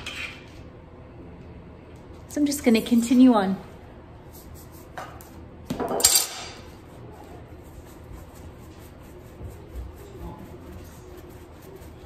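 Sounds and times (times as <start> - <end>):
hands rolling dough: 6.6 - 12.0.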